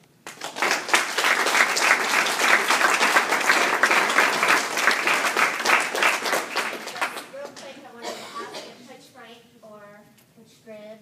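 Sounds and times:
audience applauding: 0.2 - 7.8.

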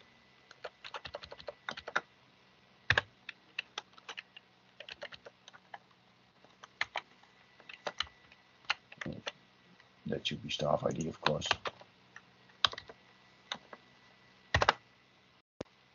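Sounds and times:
computer keyboard typing: 0.5 - 2.1, 2.9 - 5.8, 6.5 - 7.0, 7.6 - 9.4, 10.8 - 11.9, 12.6 - 13.7, 14.5 - 14.8.

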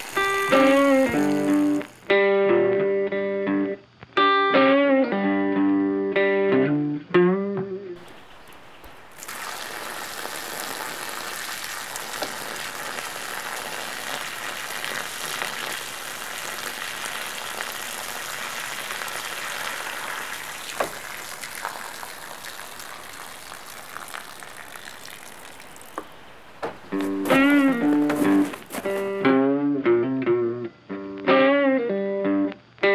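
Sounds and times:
water splashing onto gravel: 0.0 - 2.1, 8.0 - 29.2
electric guitar music: 0.0 - 8.0, 26.8 - 32.9.

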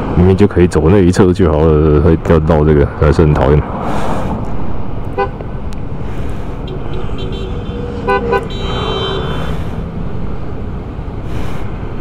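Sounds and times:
scooter engine and road noise: 0.0 - 12.0
horn toots: 6.6 - 9.8.

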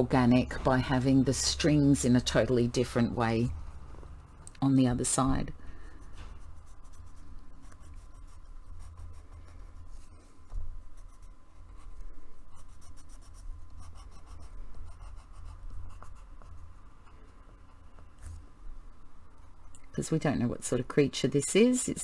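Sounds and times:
faint low hum: 0.0 - 22.0
pencil scratching on paper: 6.0 - 10.1, 10.9 - 16.8.

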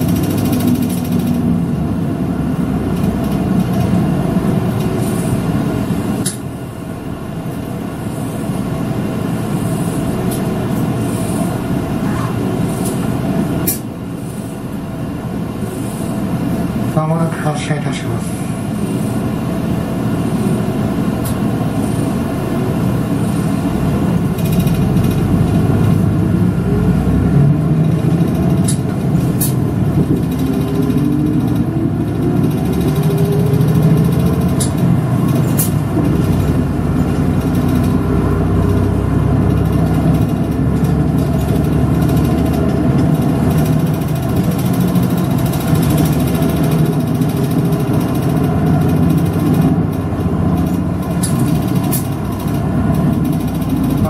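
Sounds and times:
bus engine running: 0.0 - 54.0.

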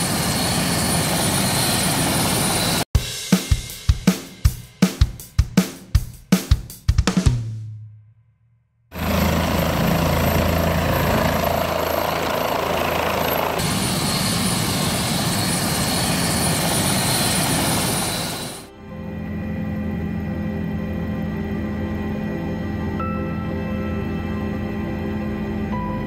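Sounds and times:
helicopter engine and rotor: 0.0 - 2.9, 9.0 - 25.7
drum-beat music: 3.0 - 8.0.

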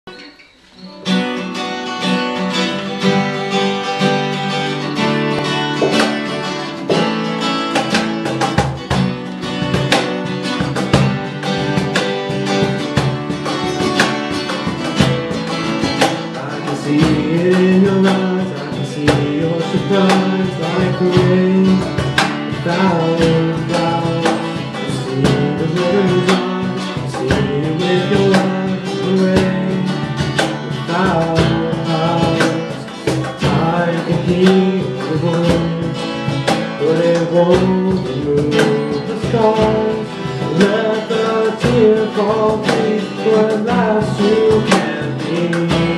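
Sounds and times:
acoustic guitars strumming: 0.0 - 45.9
man singing: 16.0 - 45.9.

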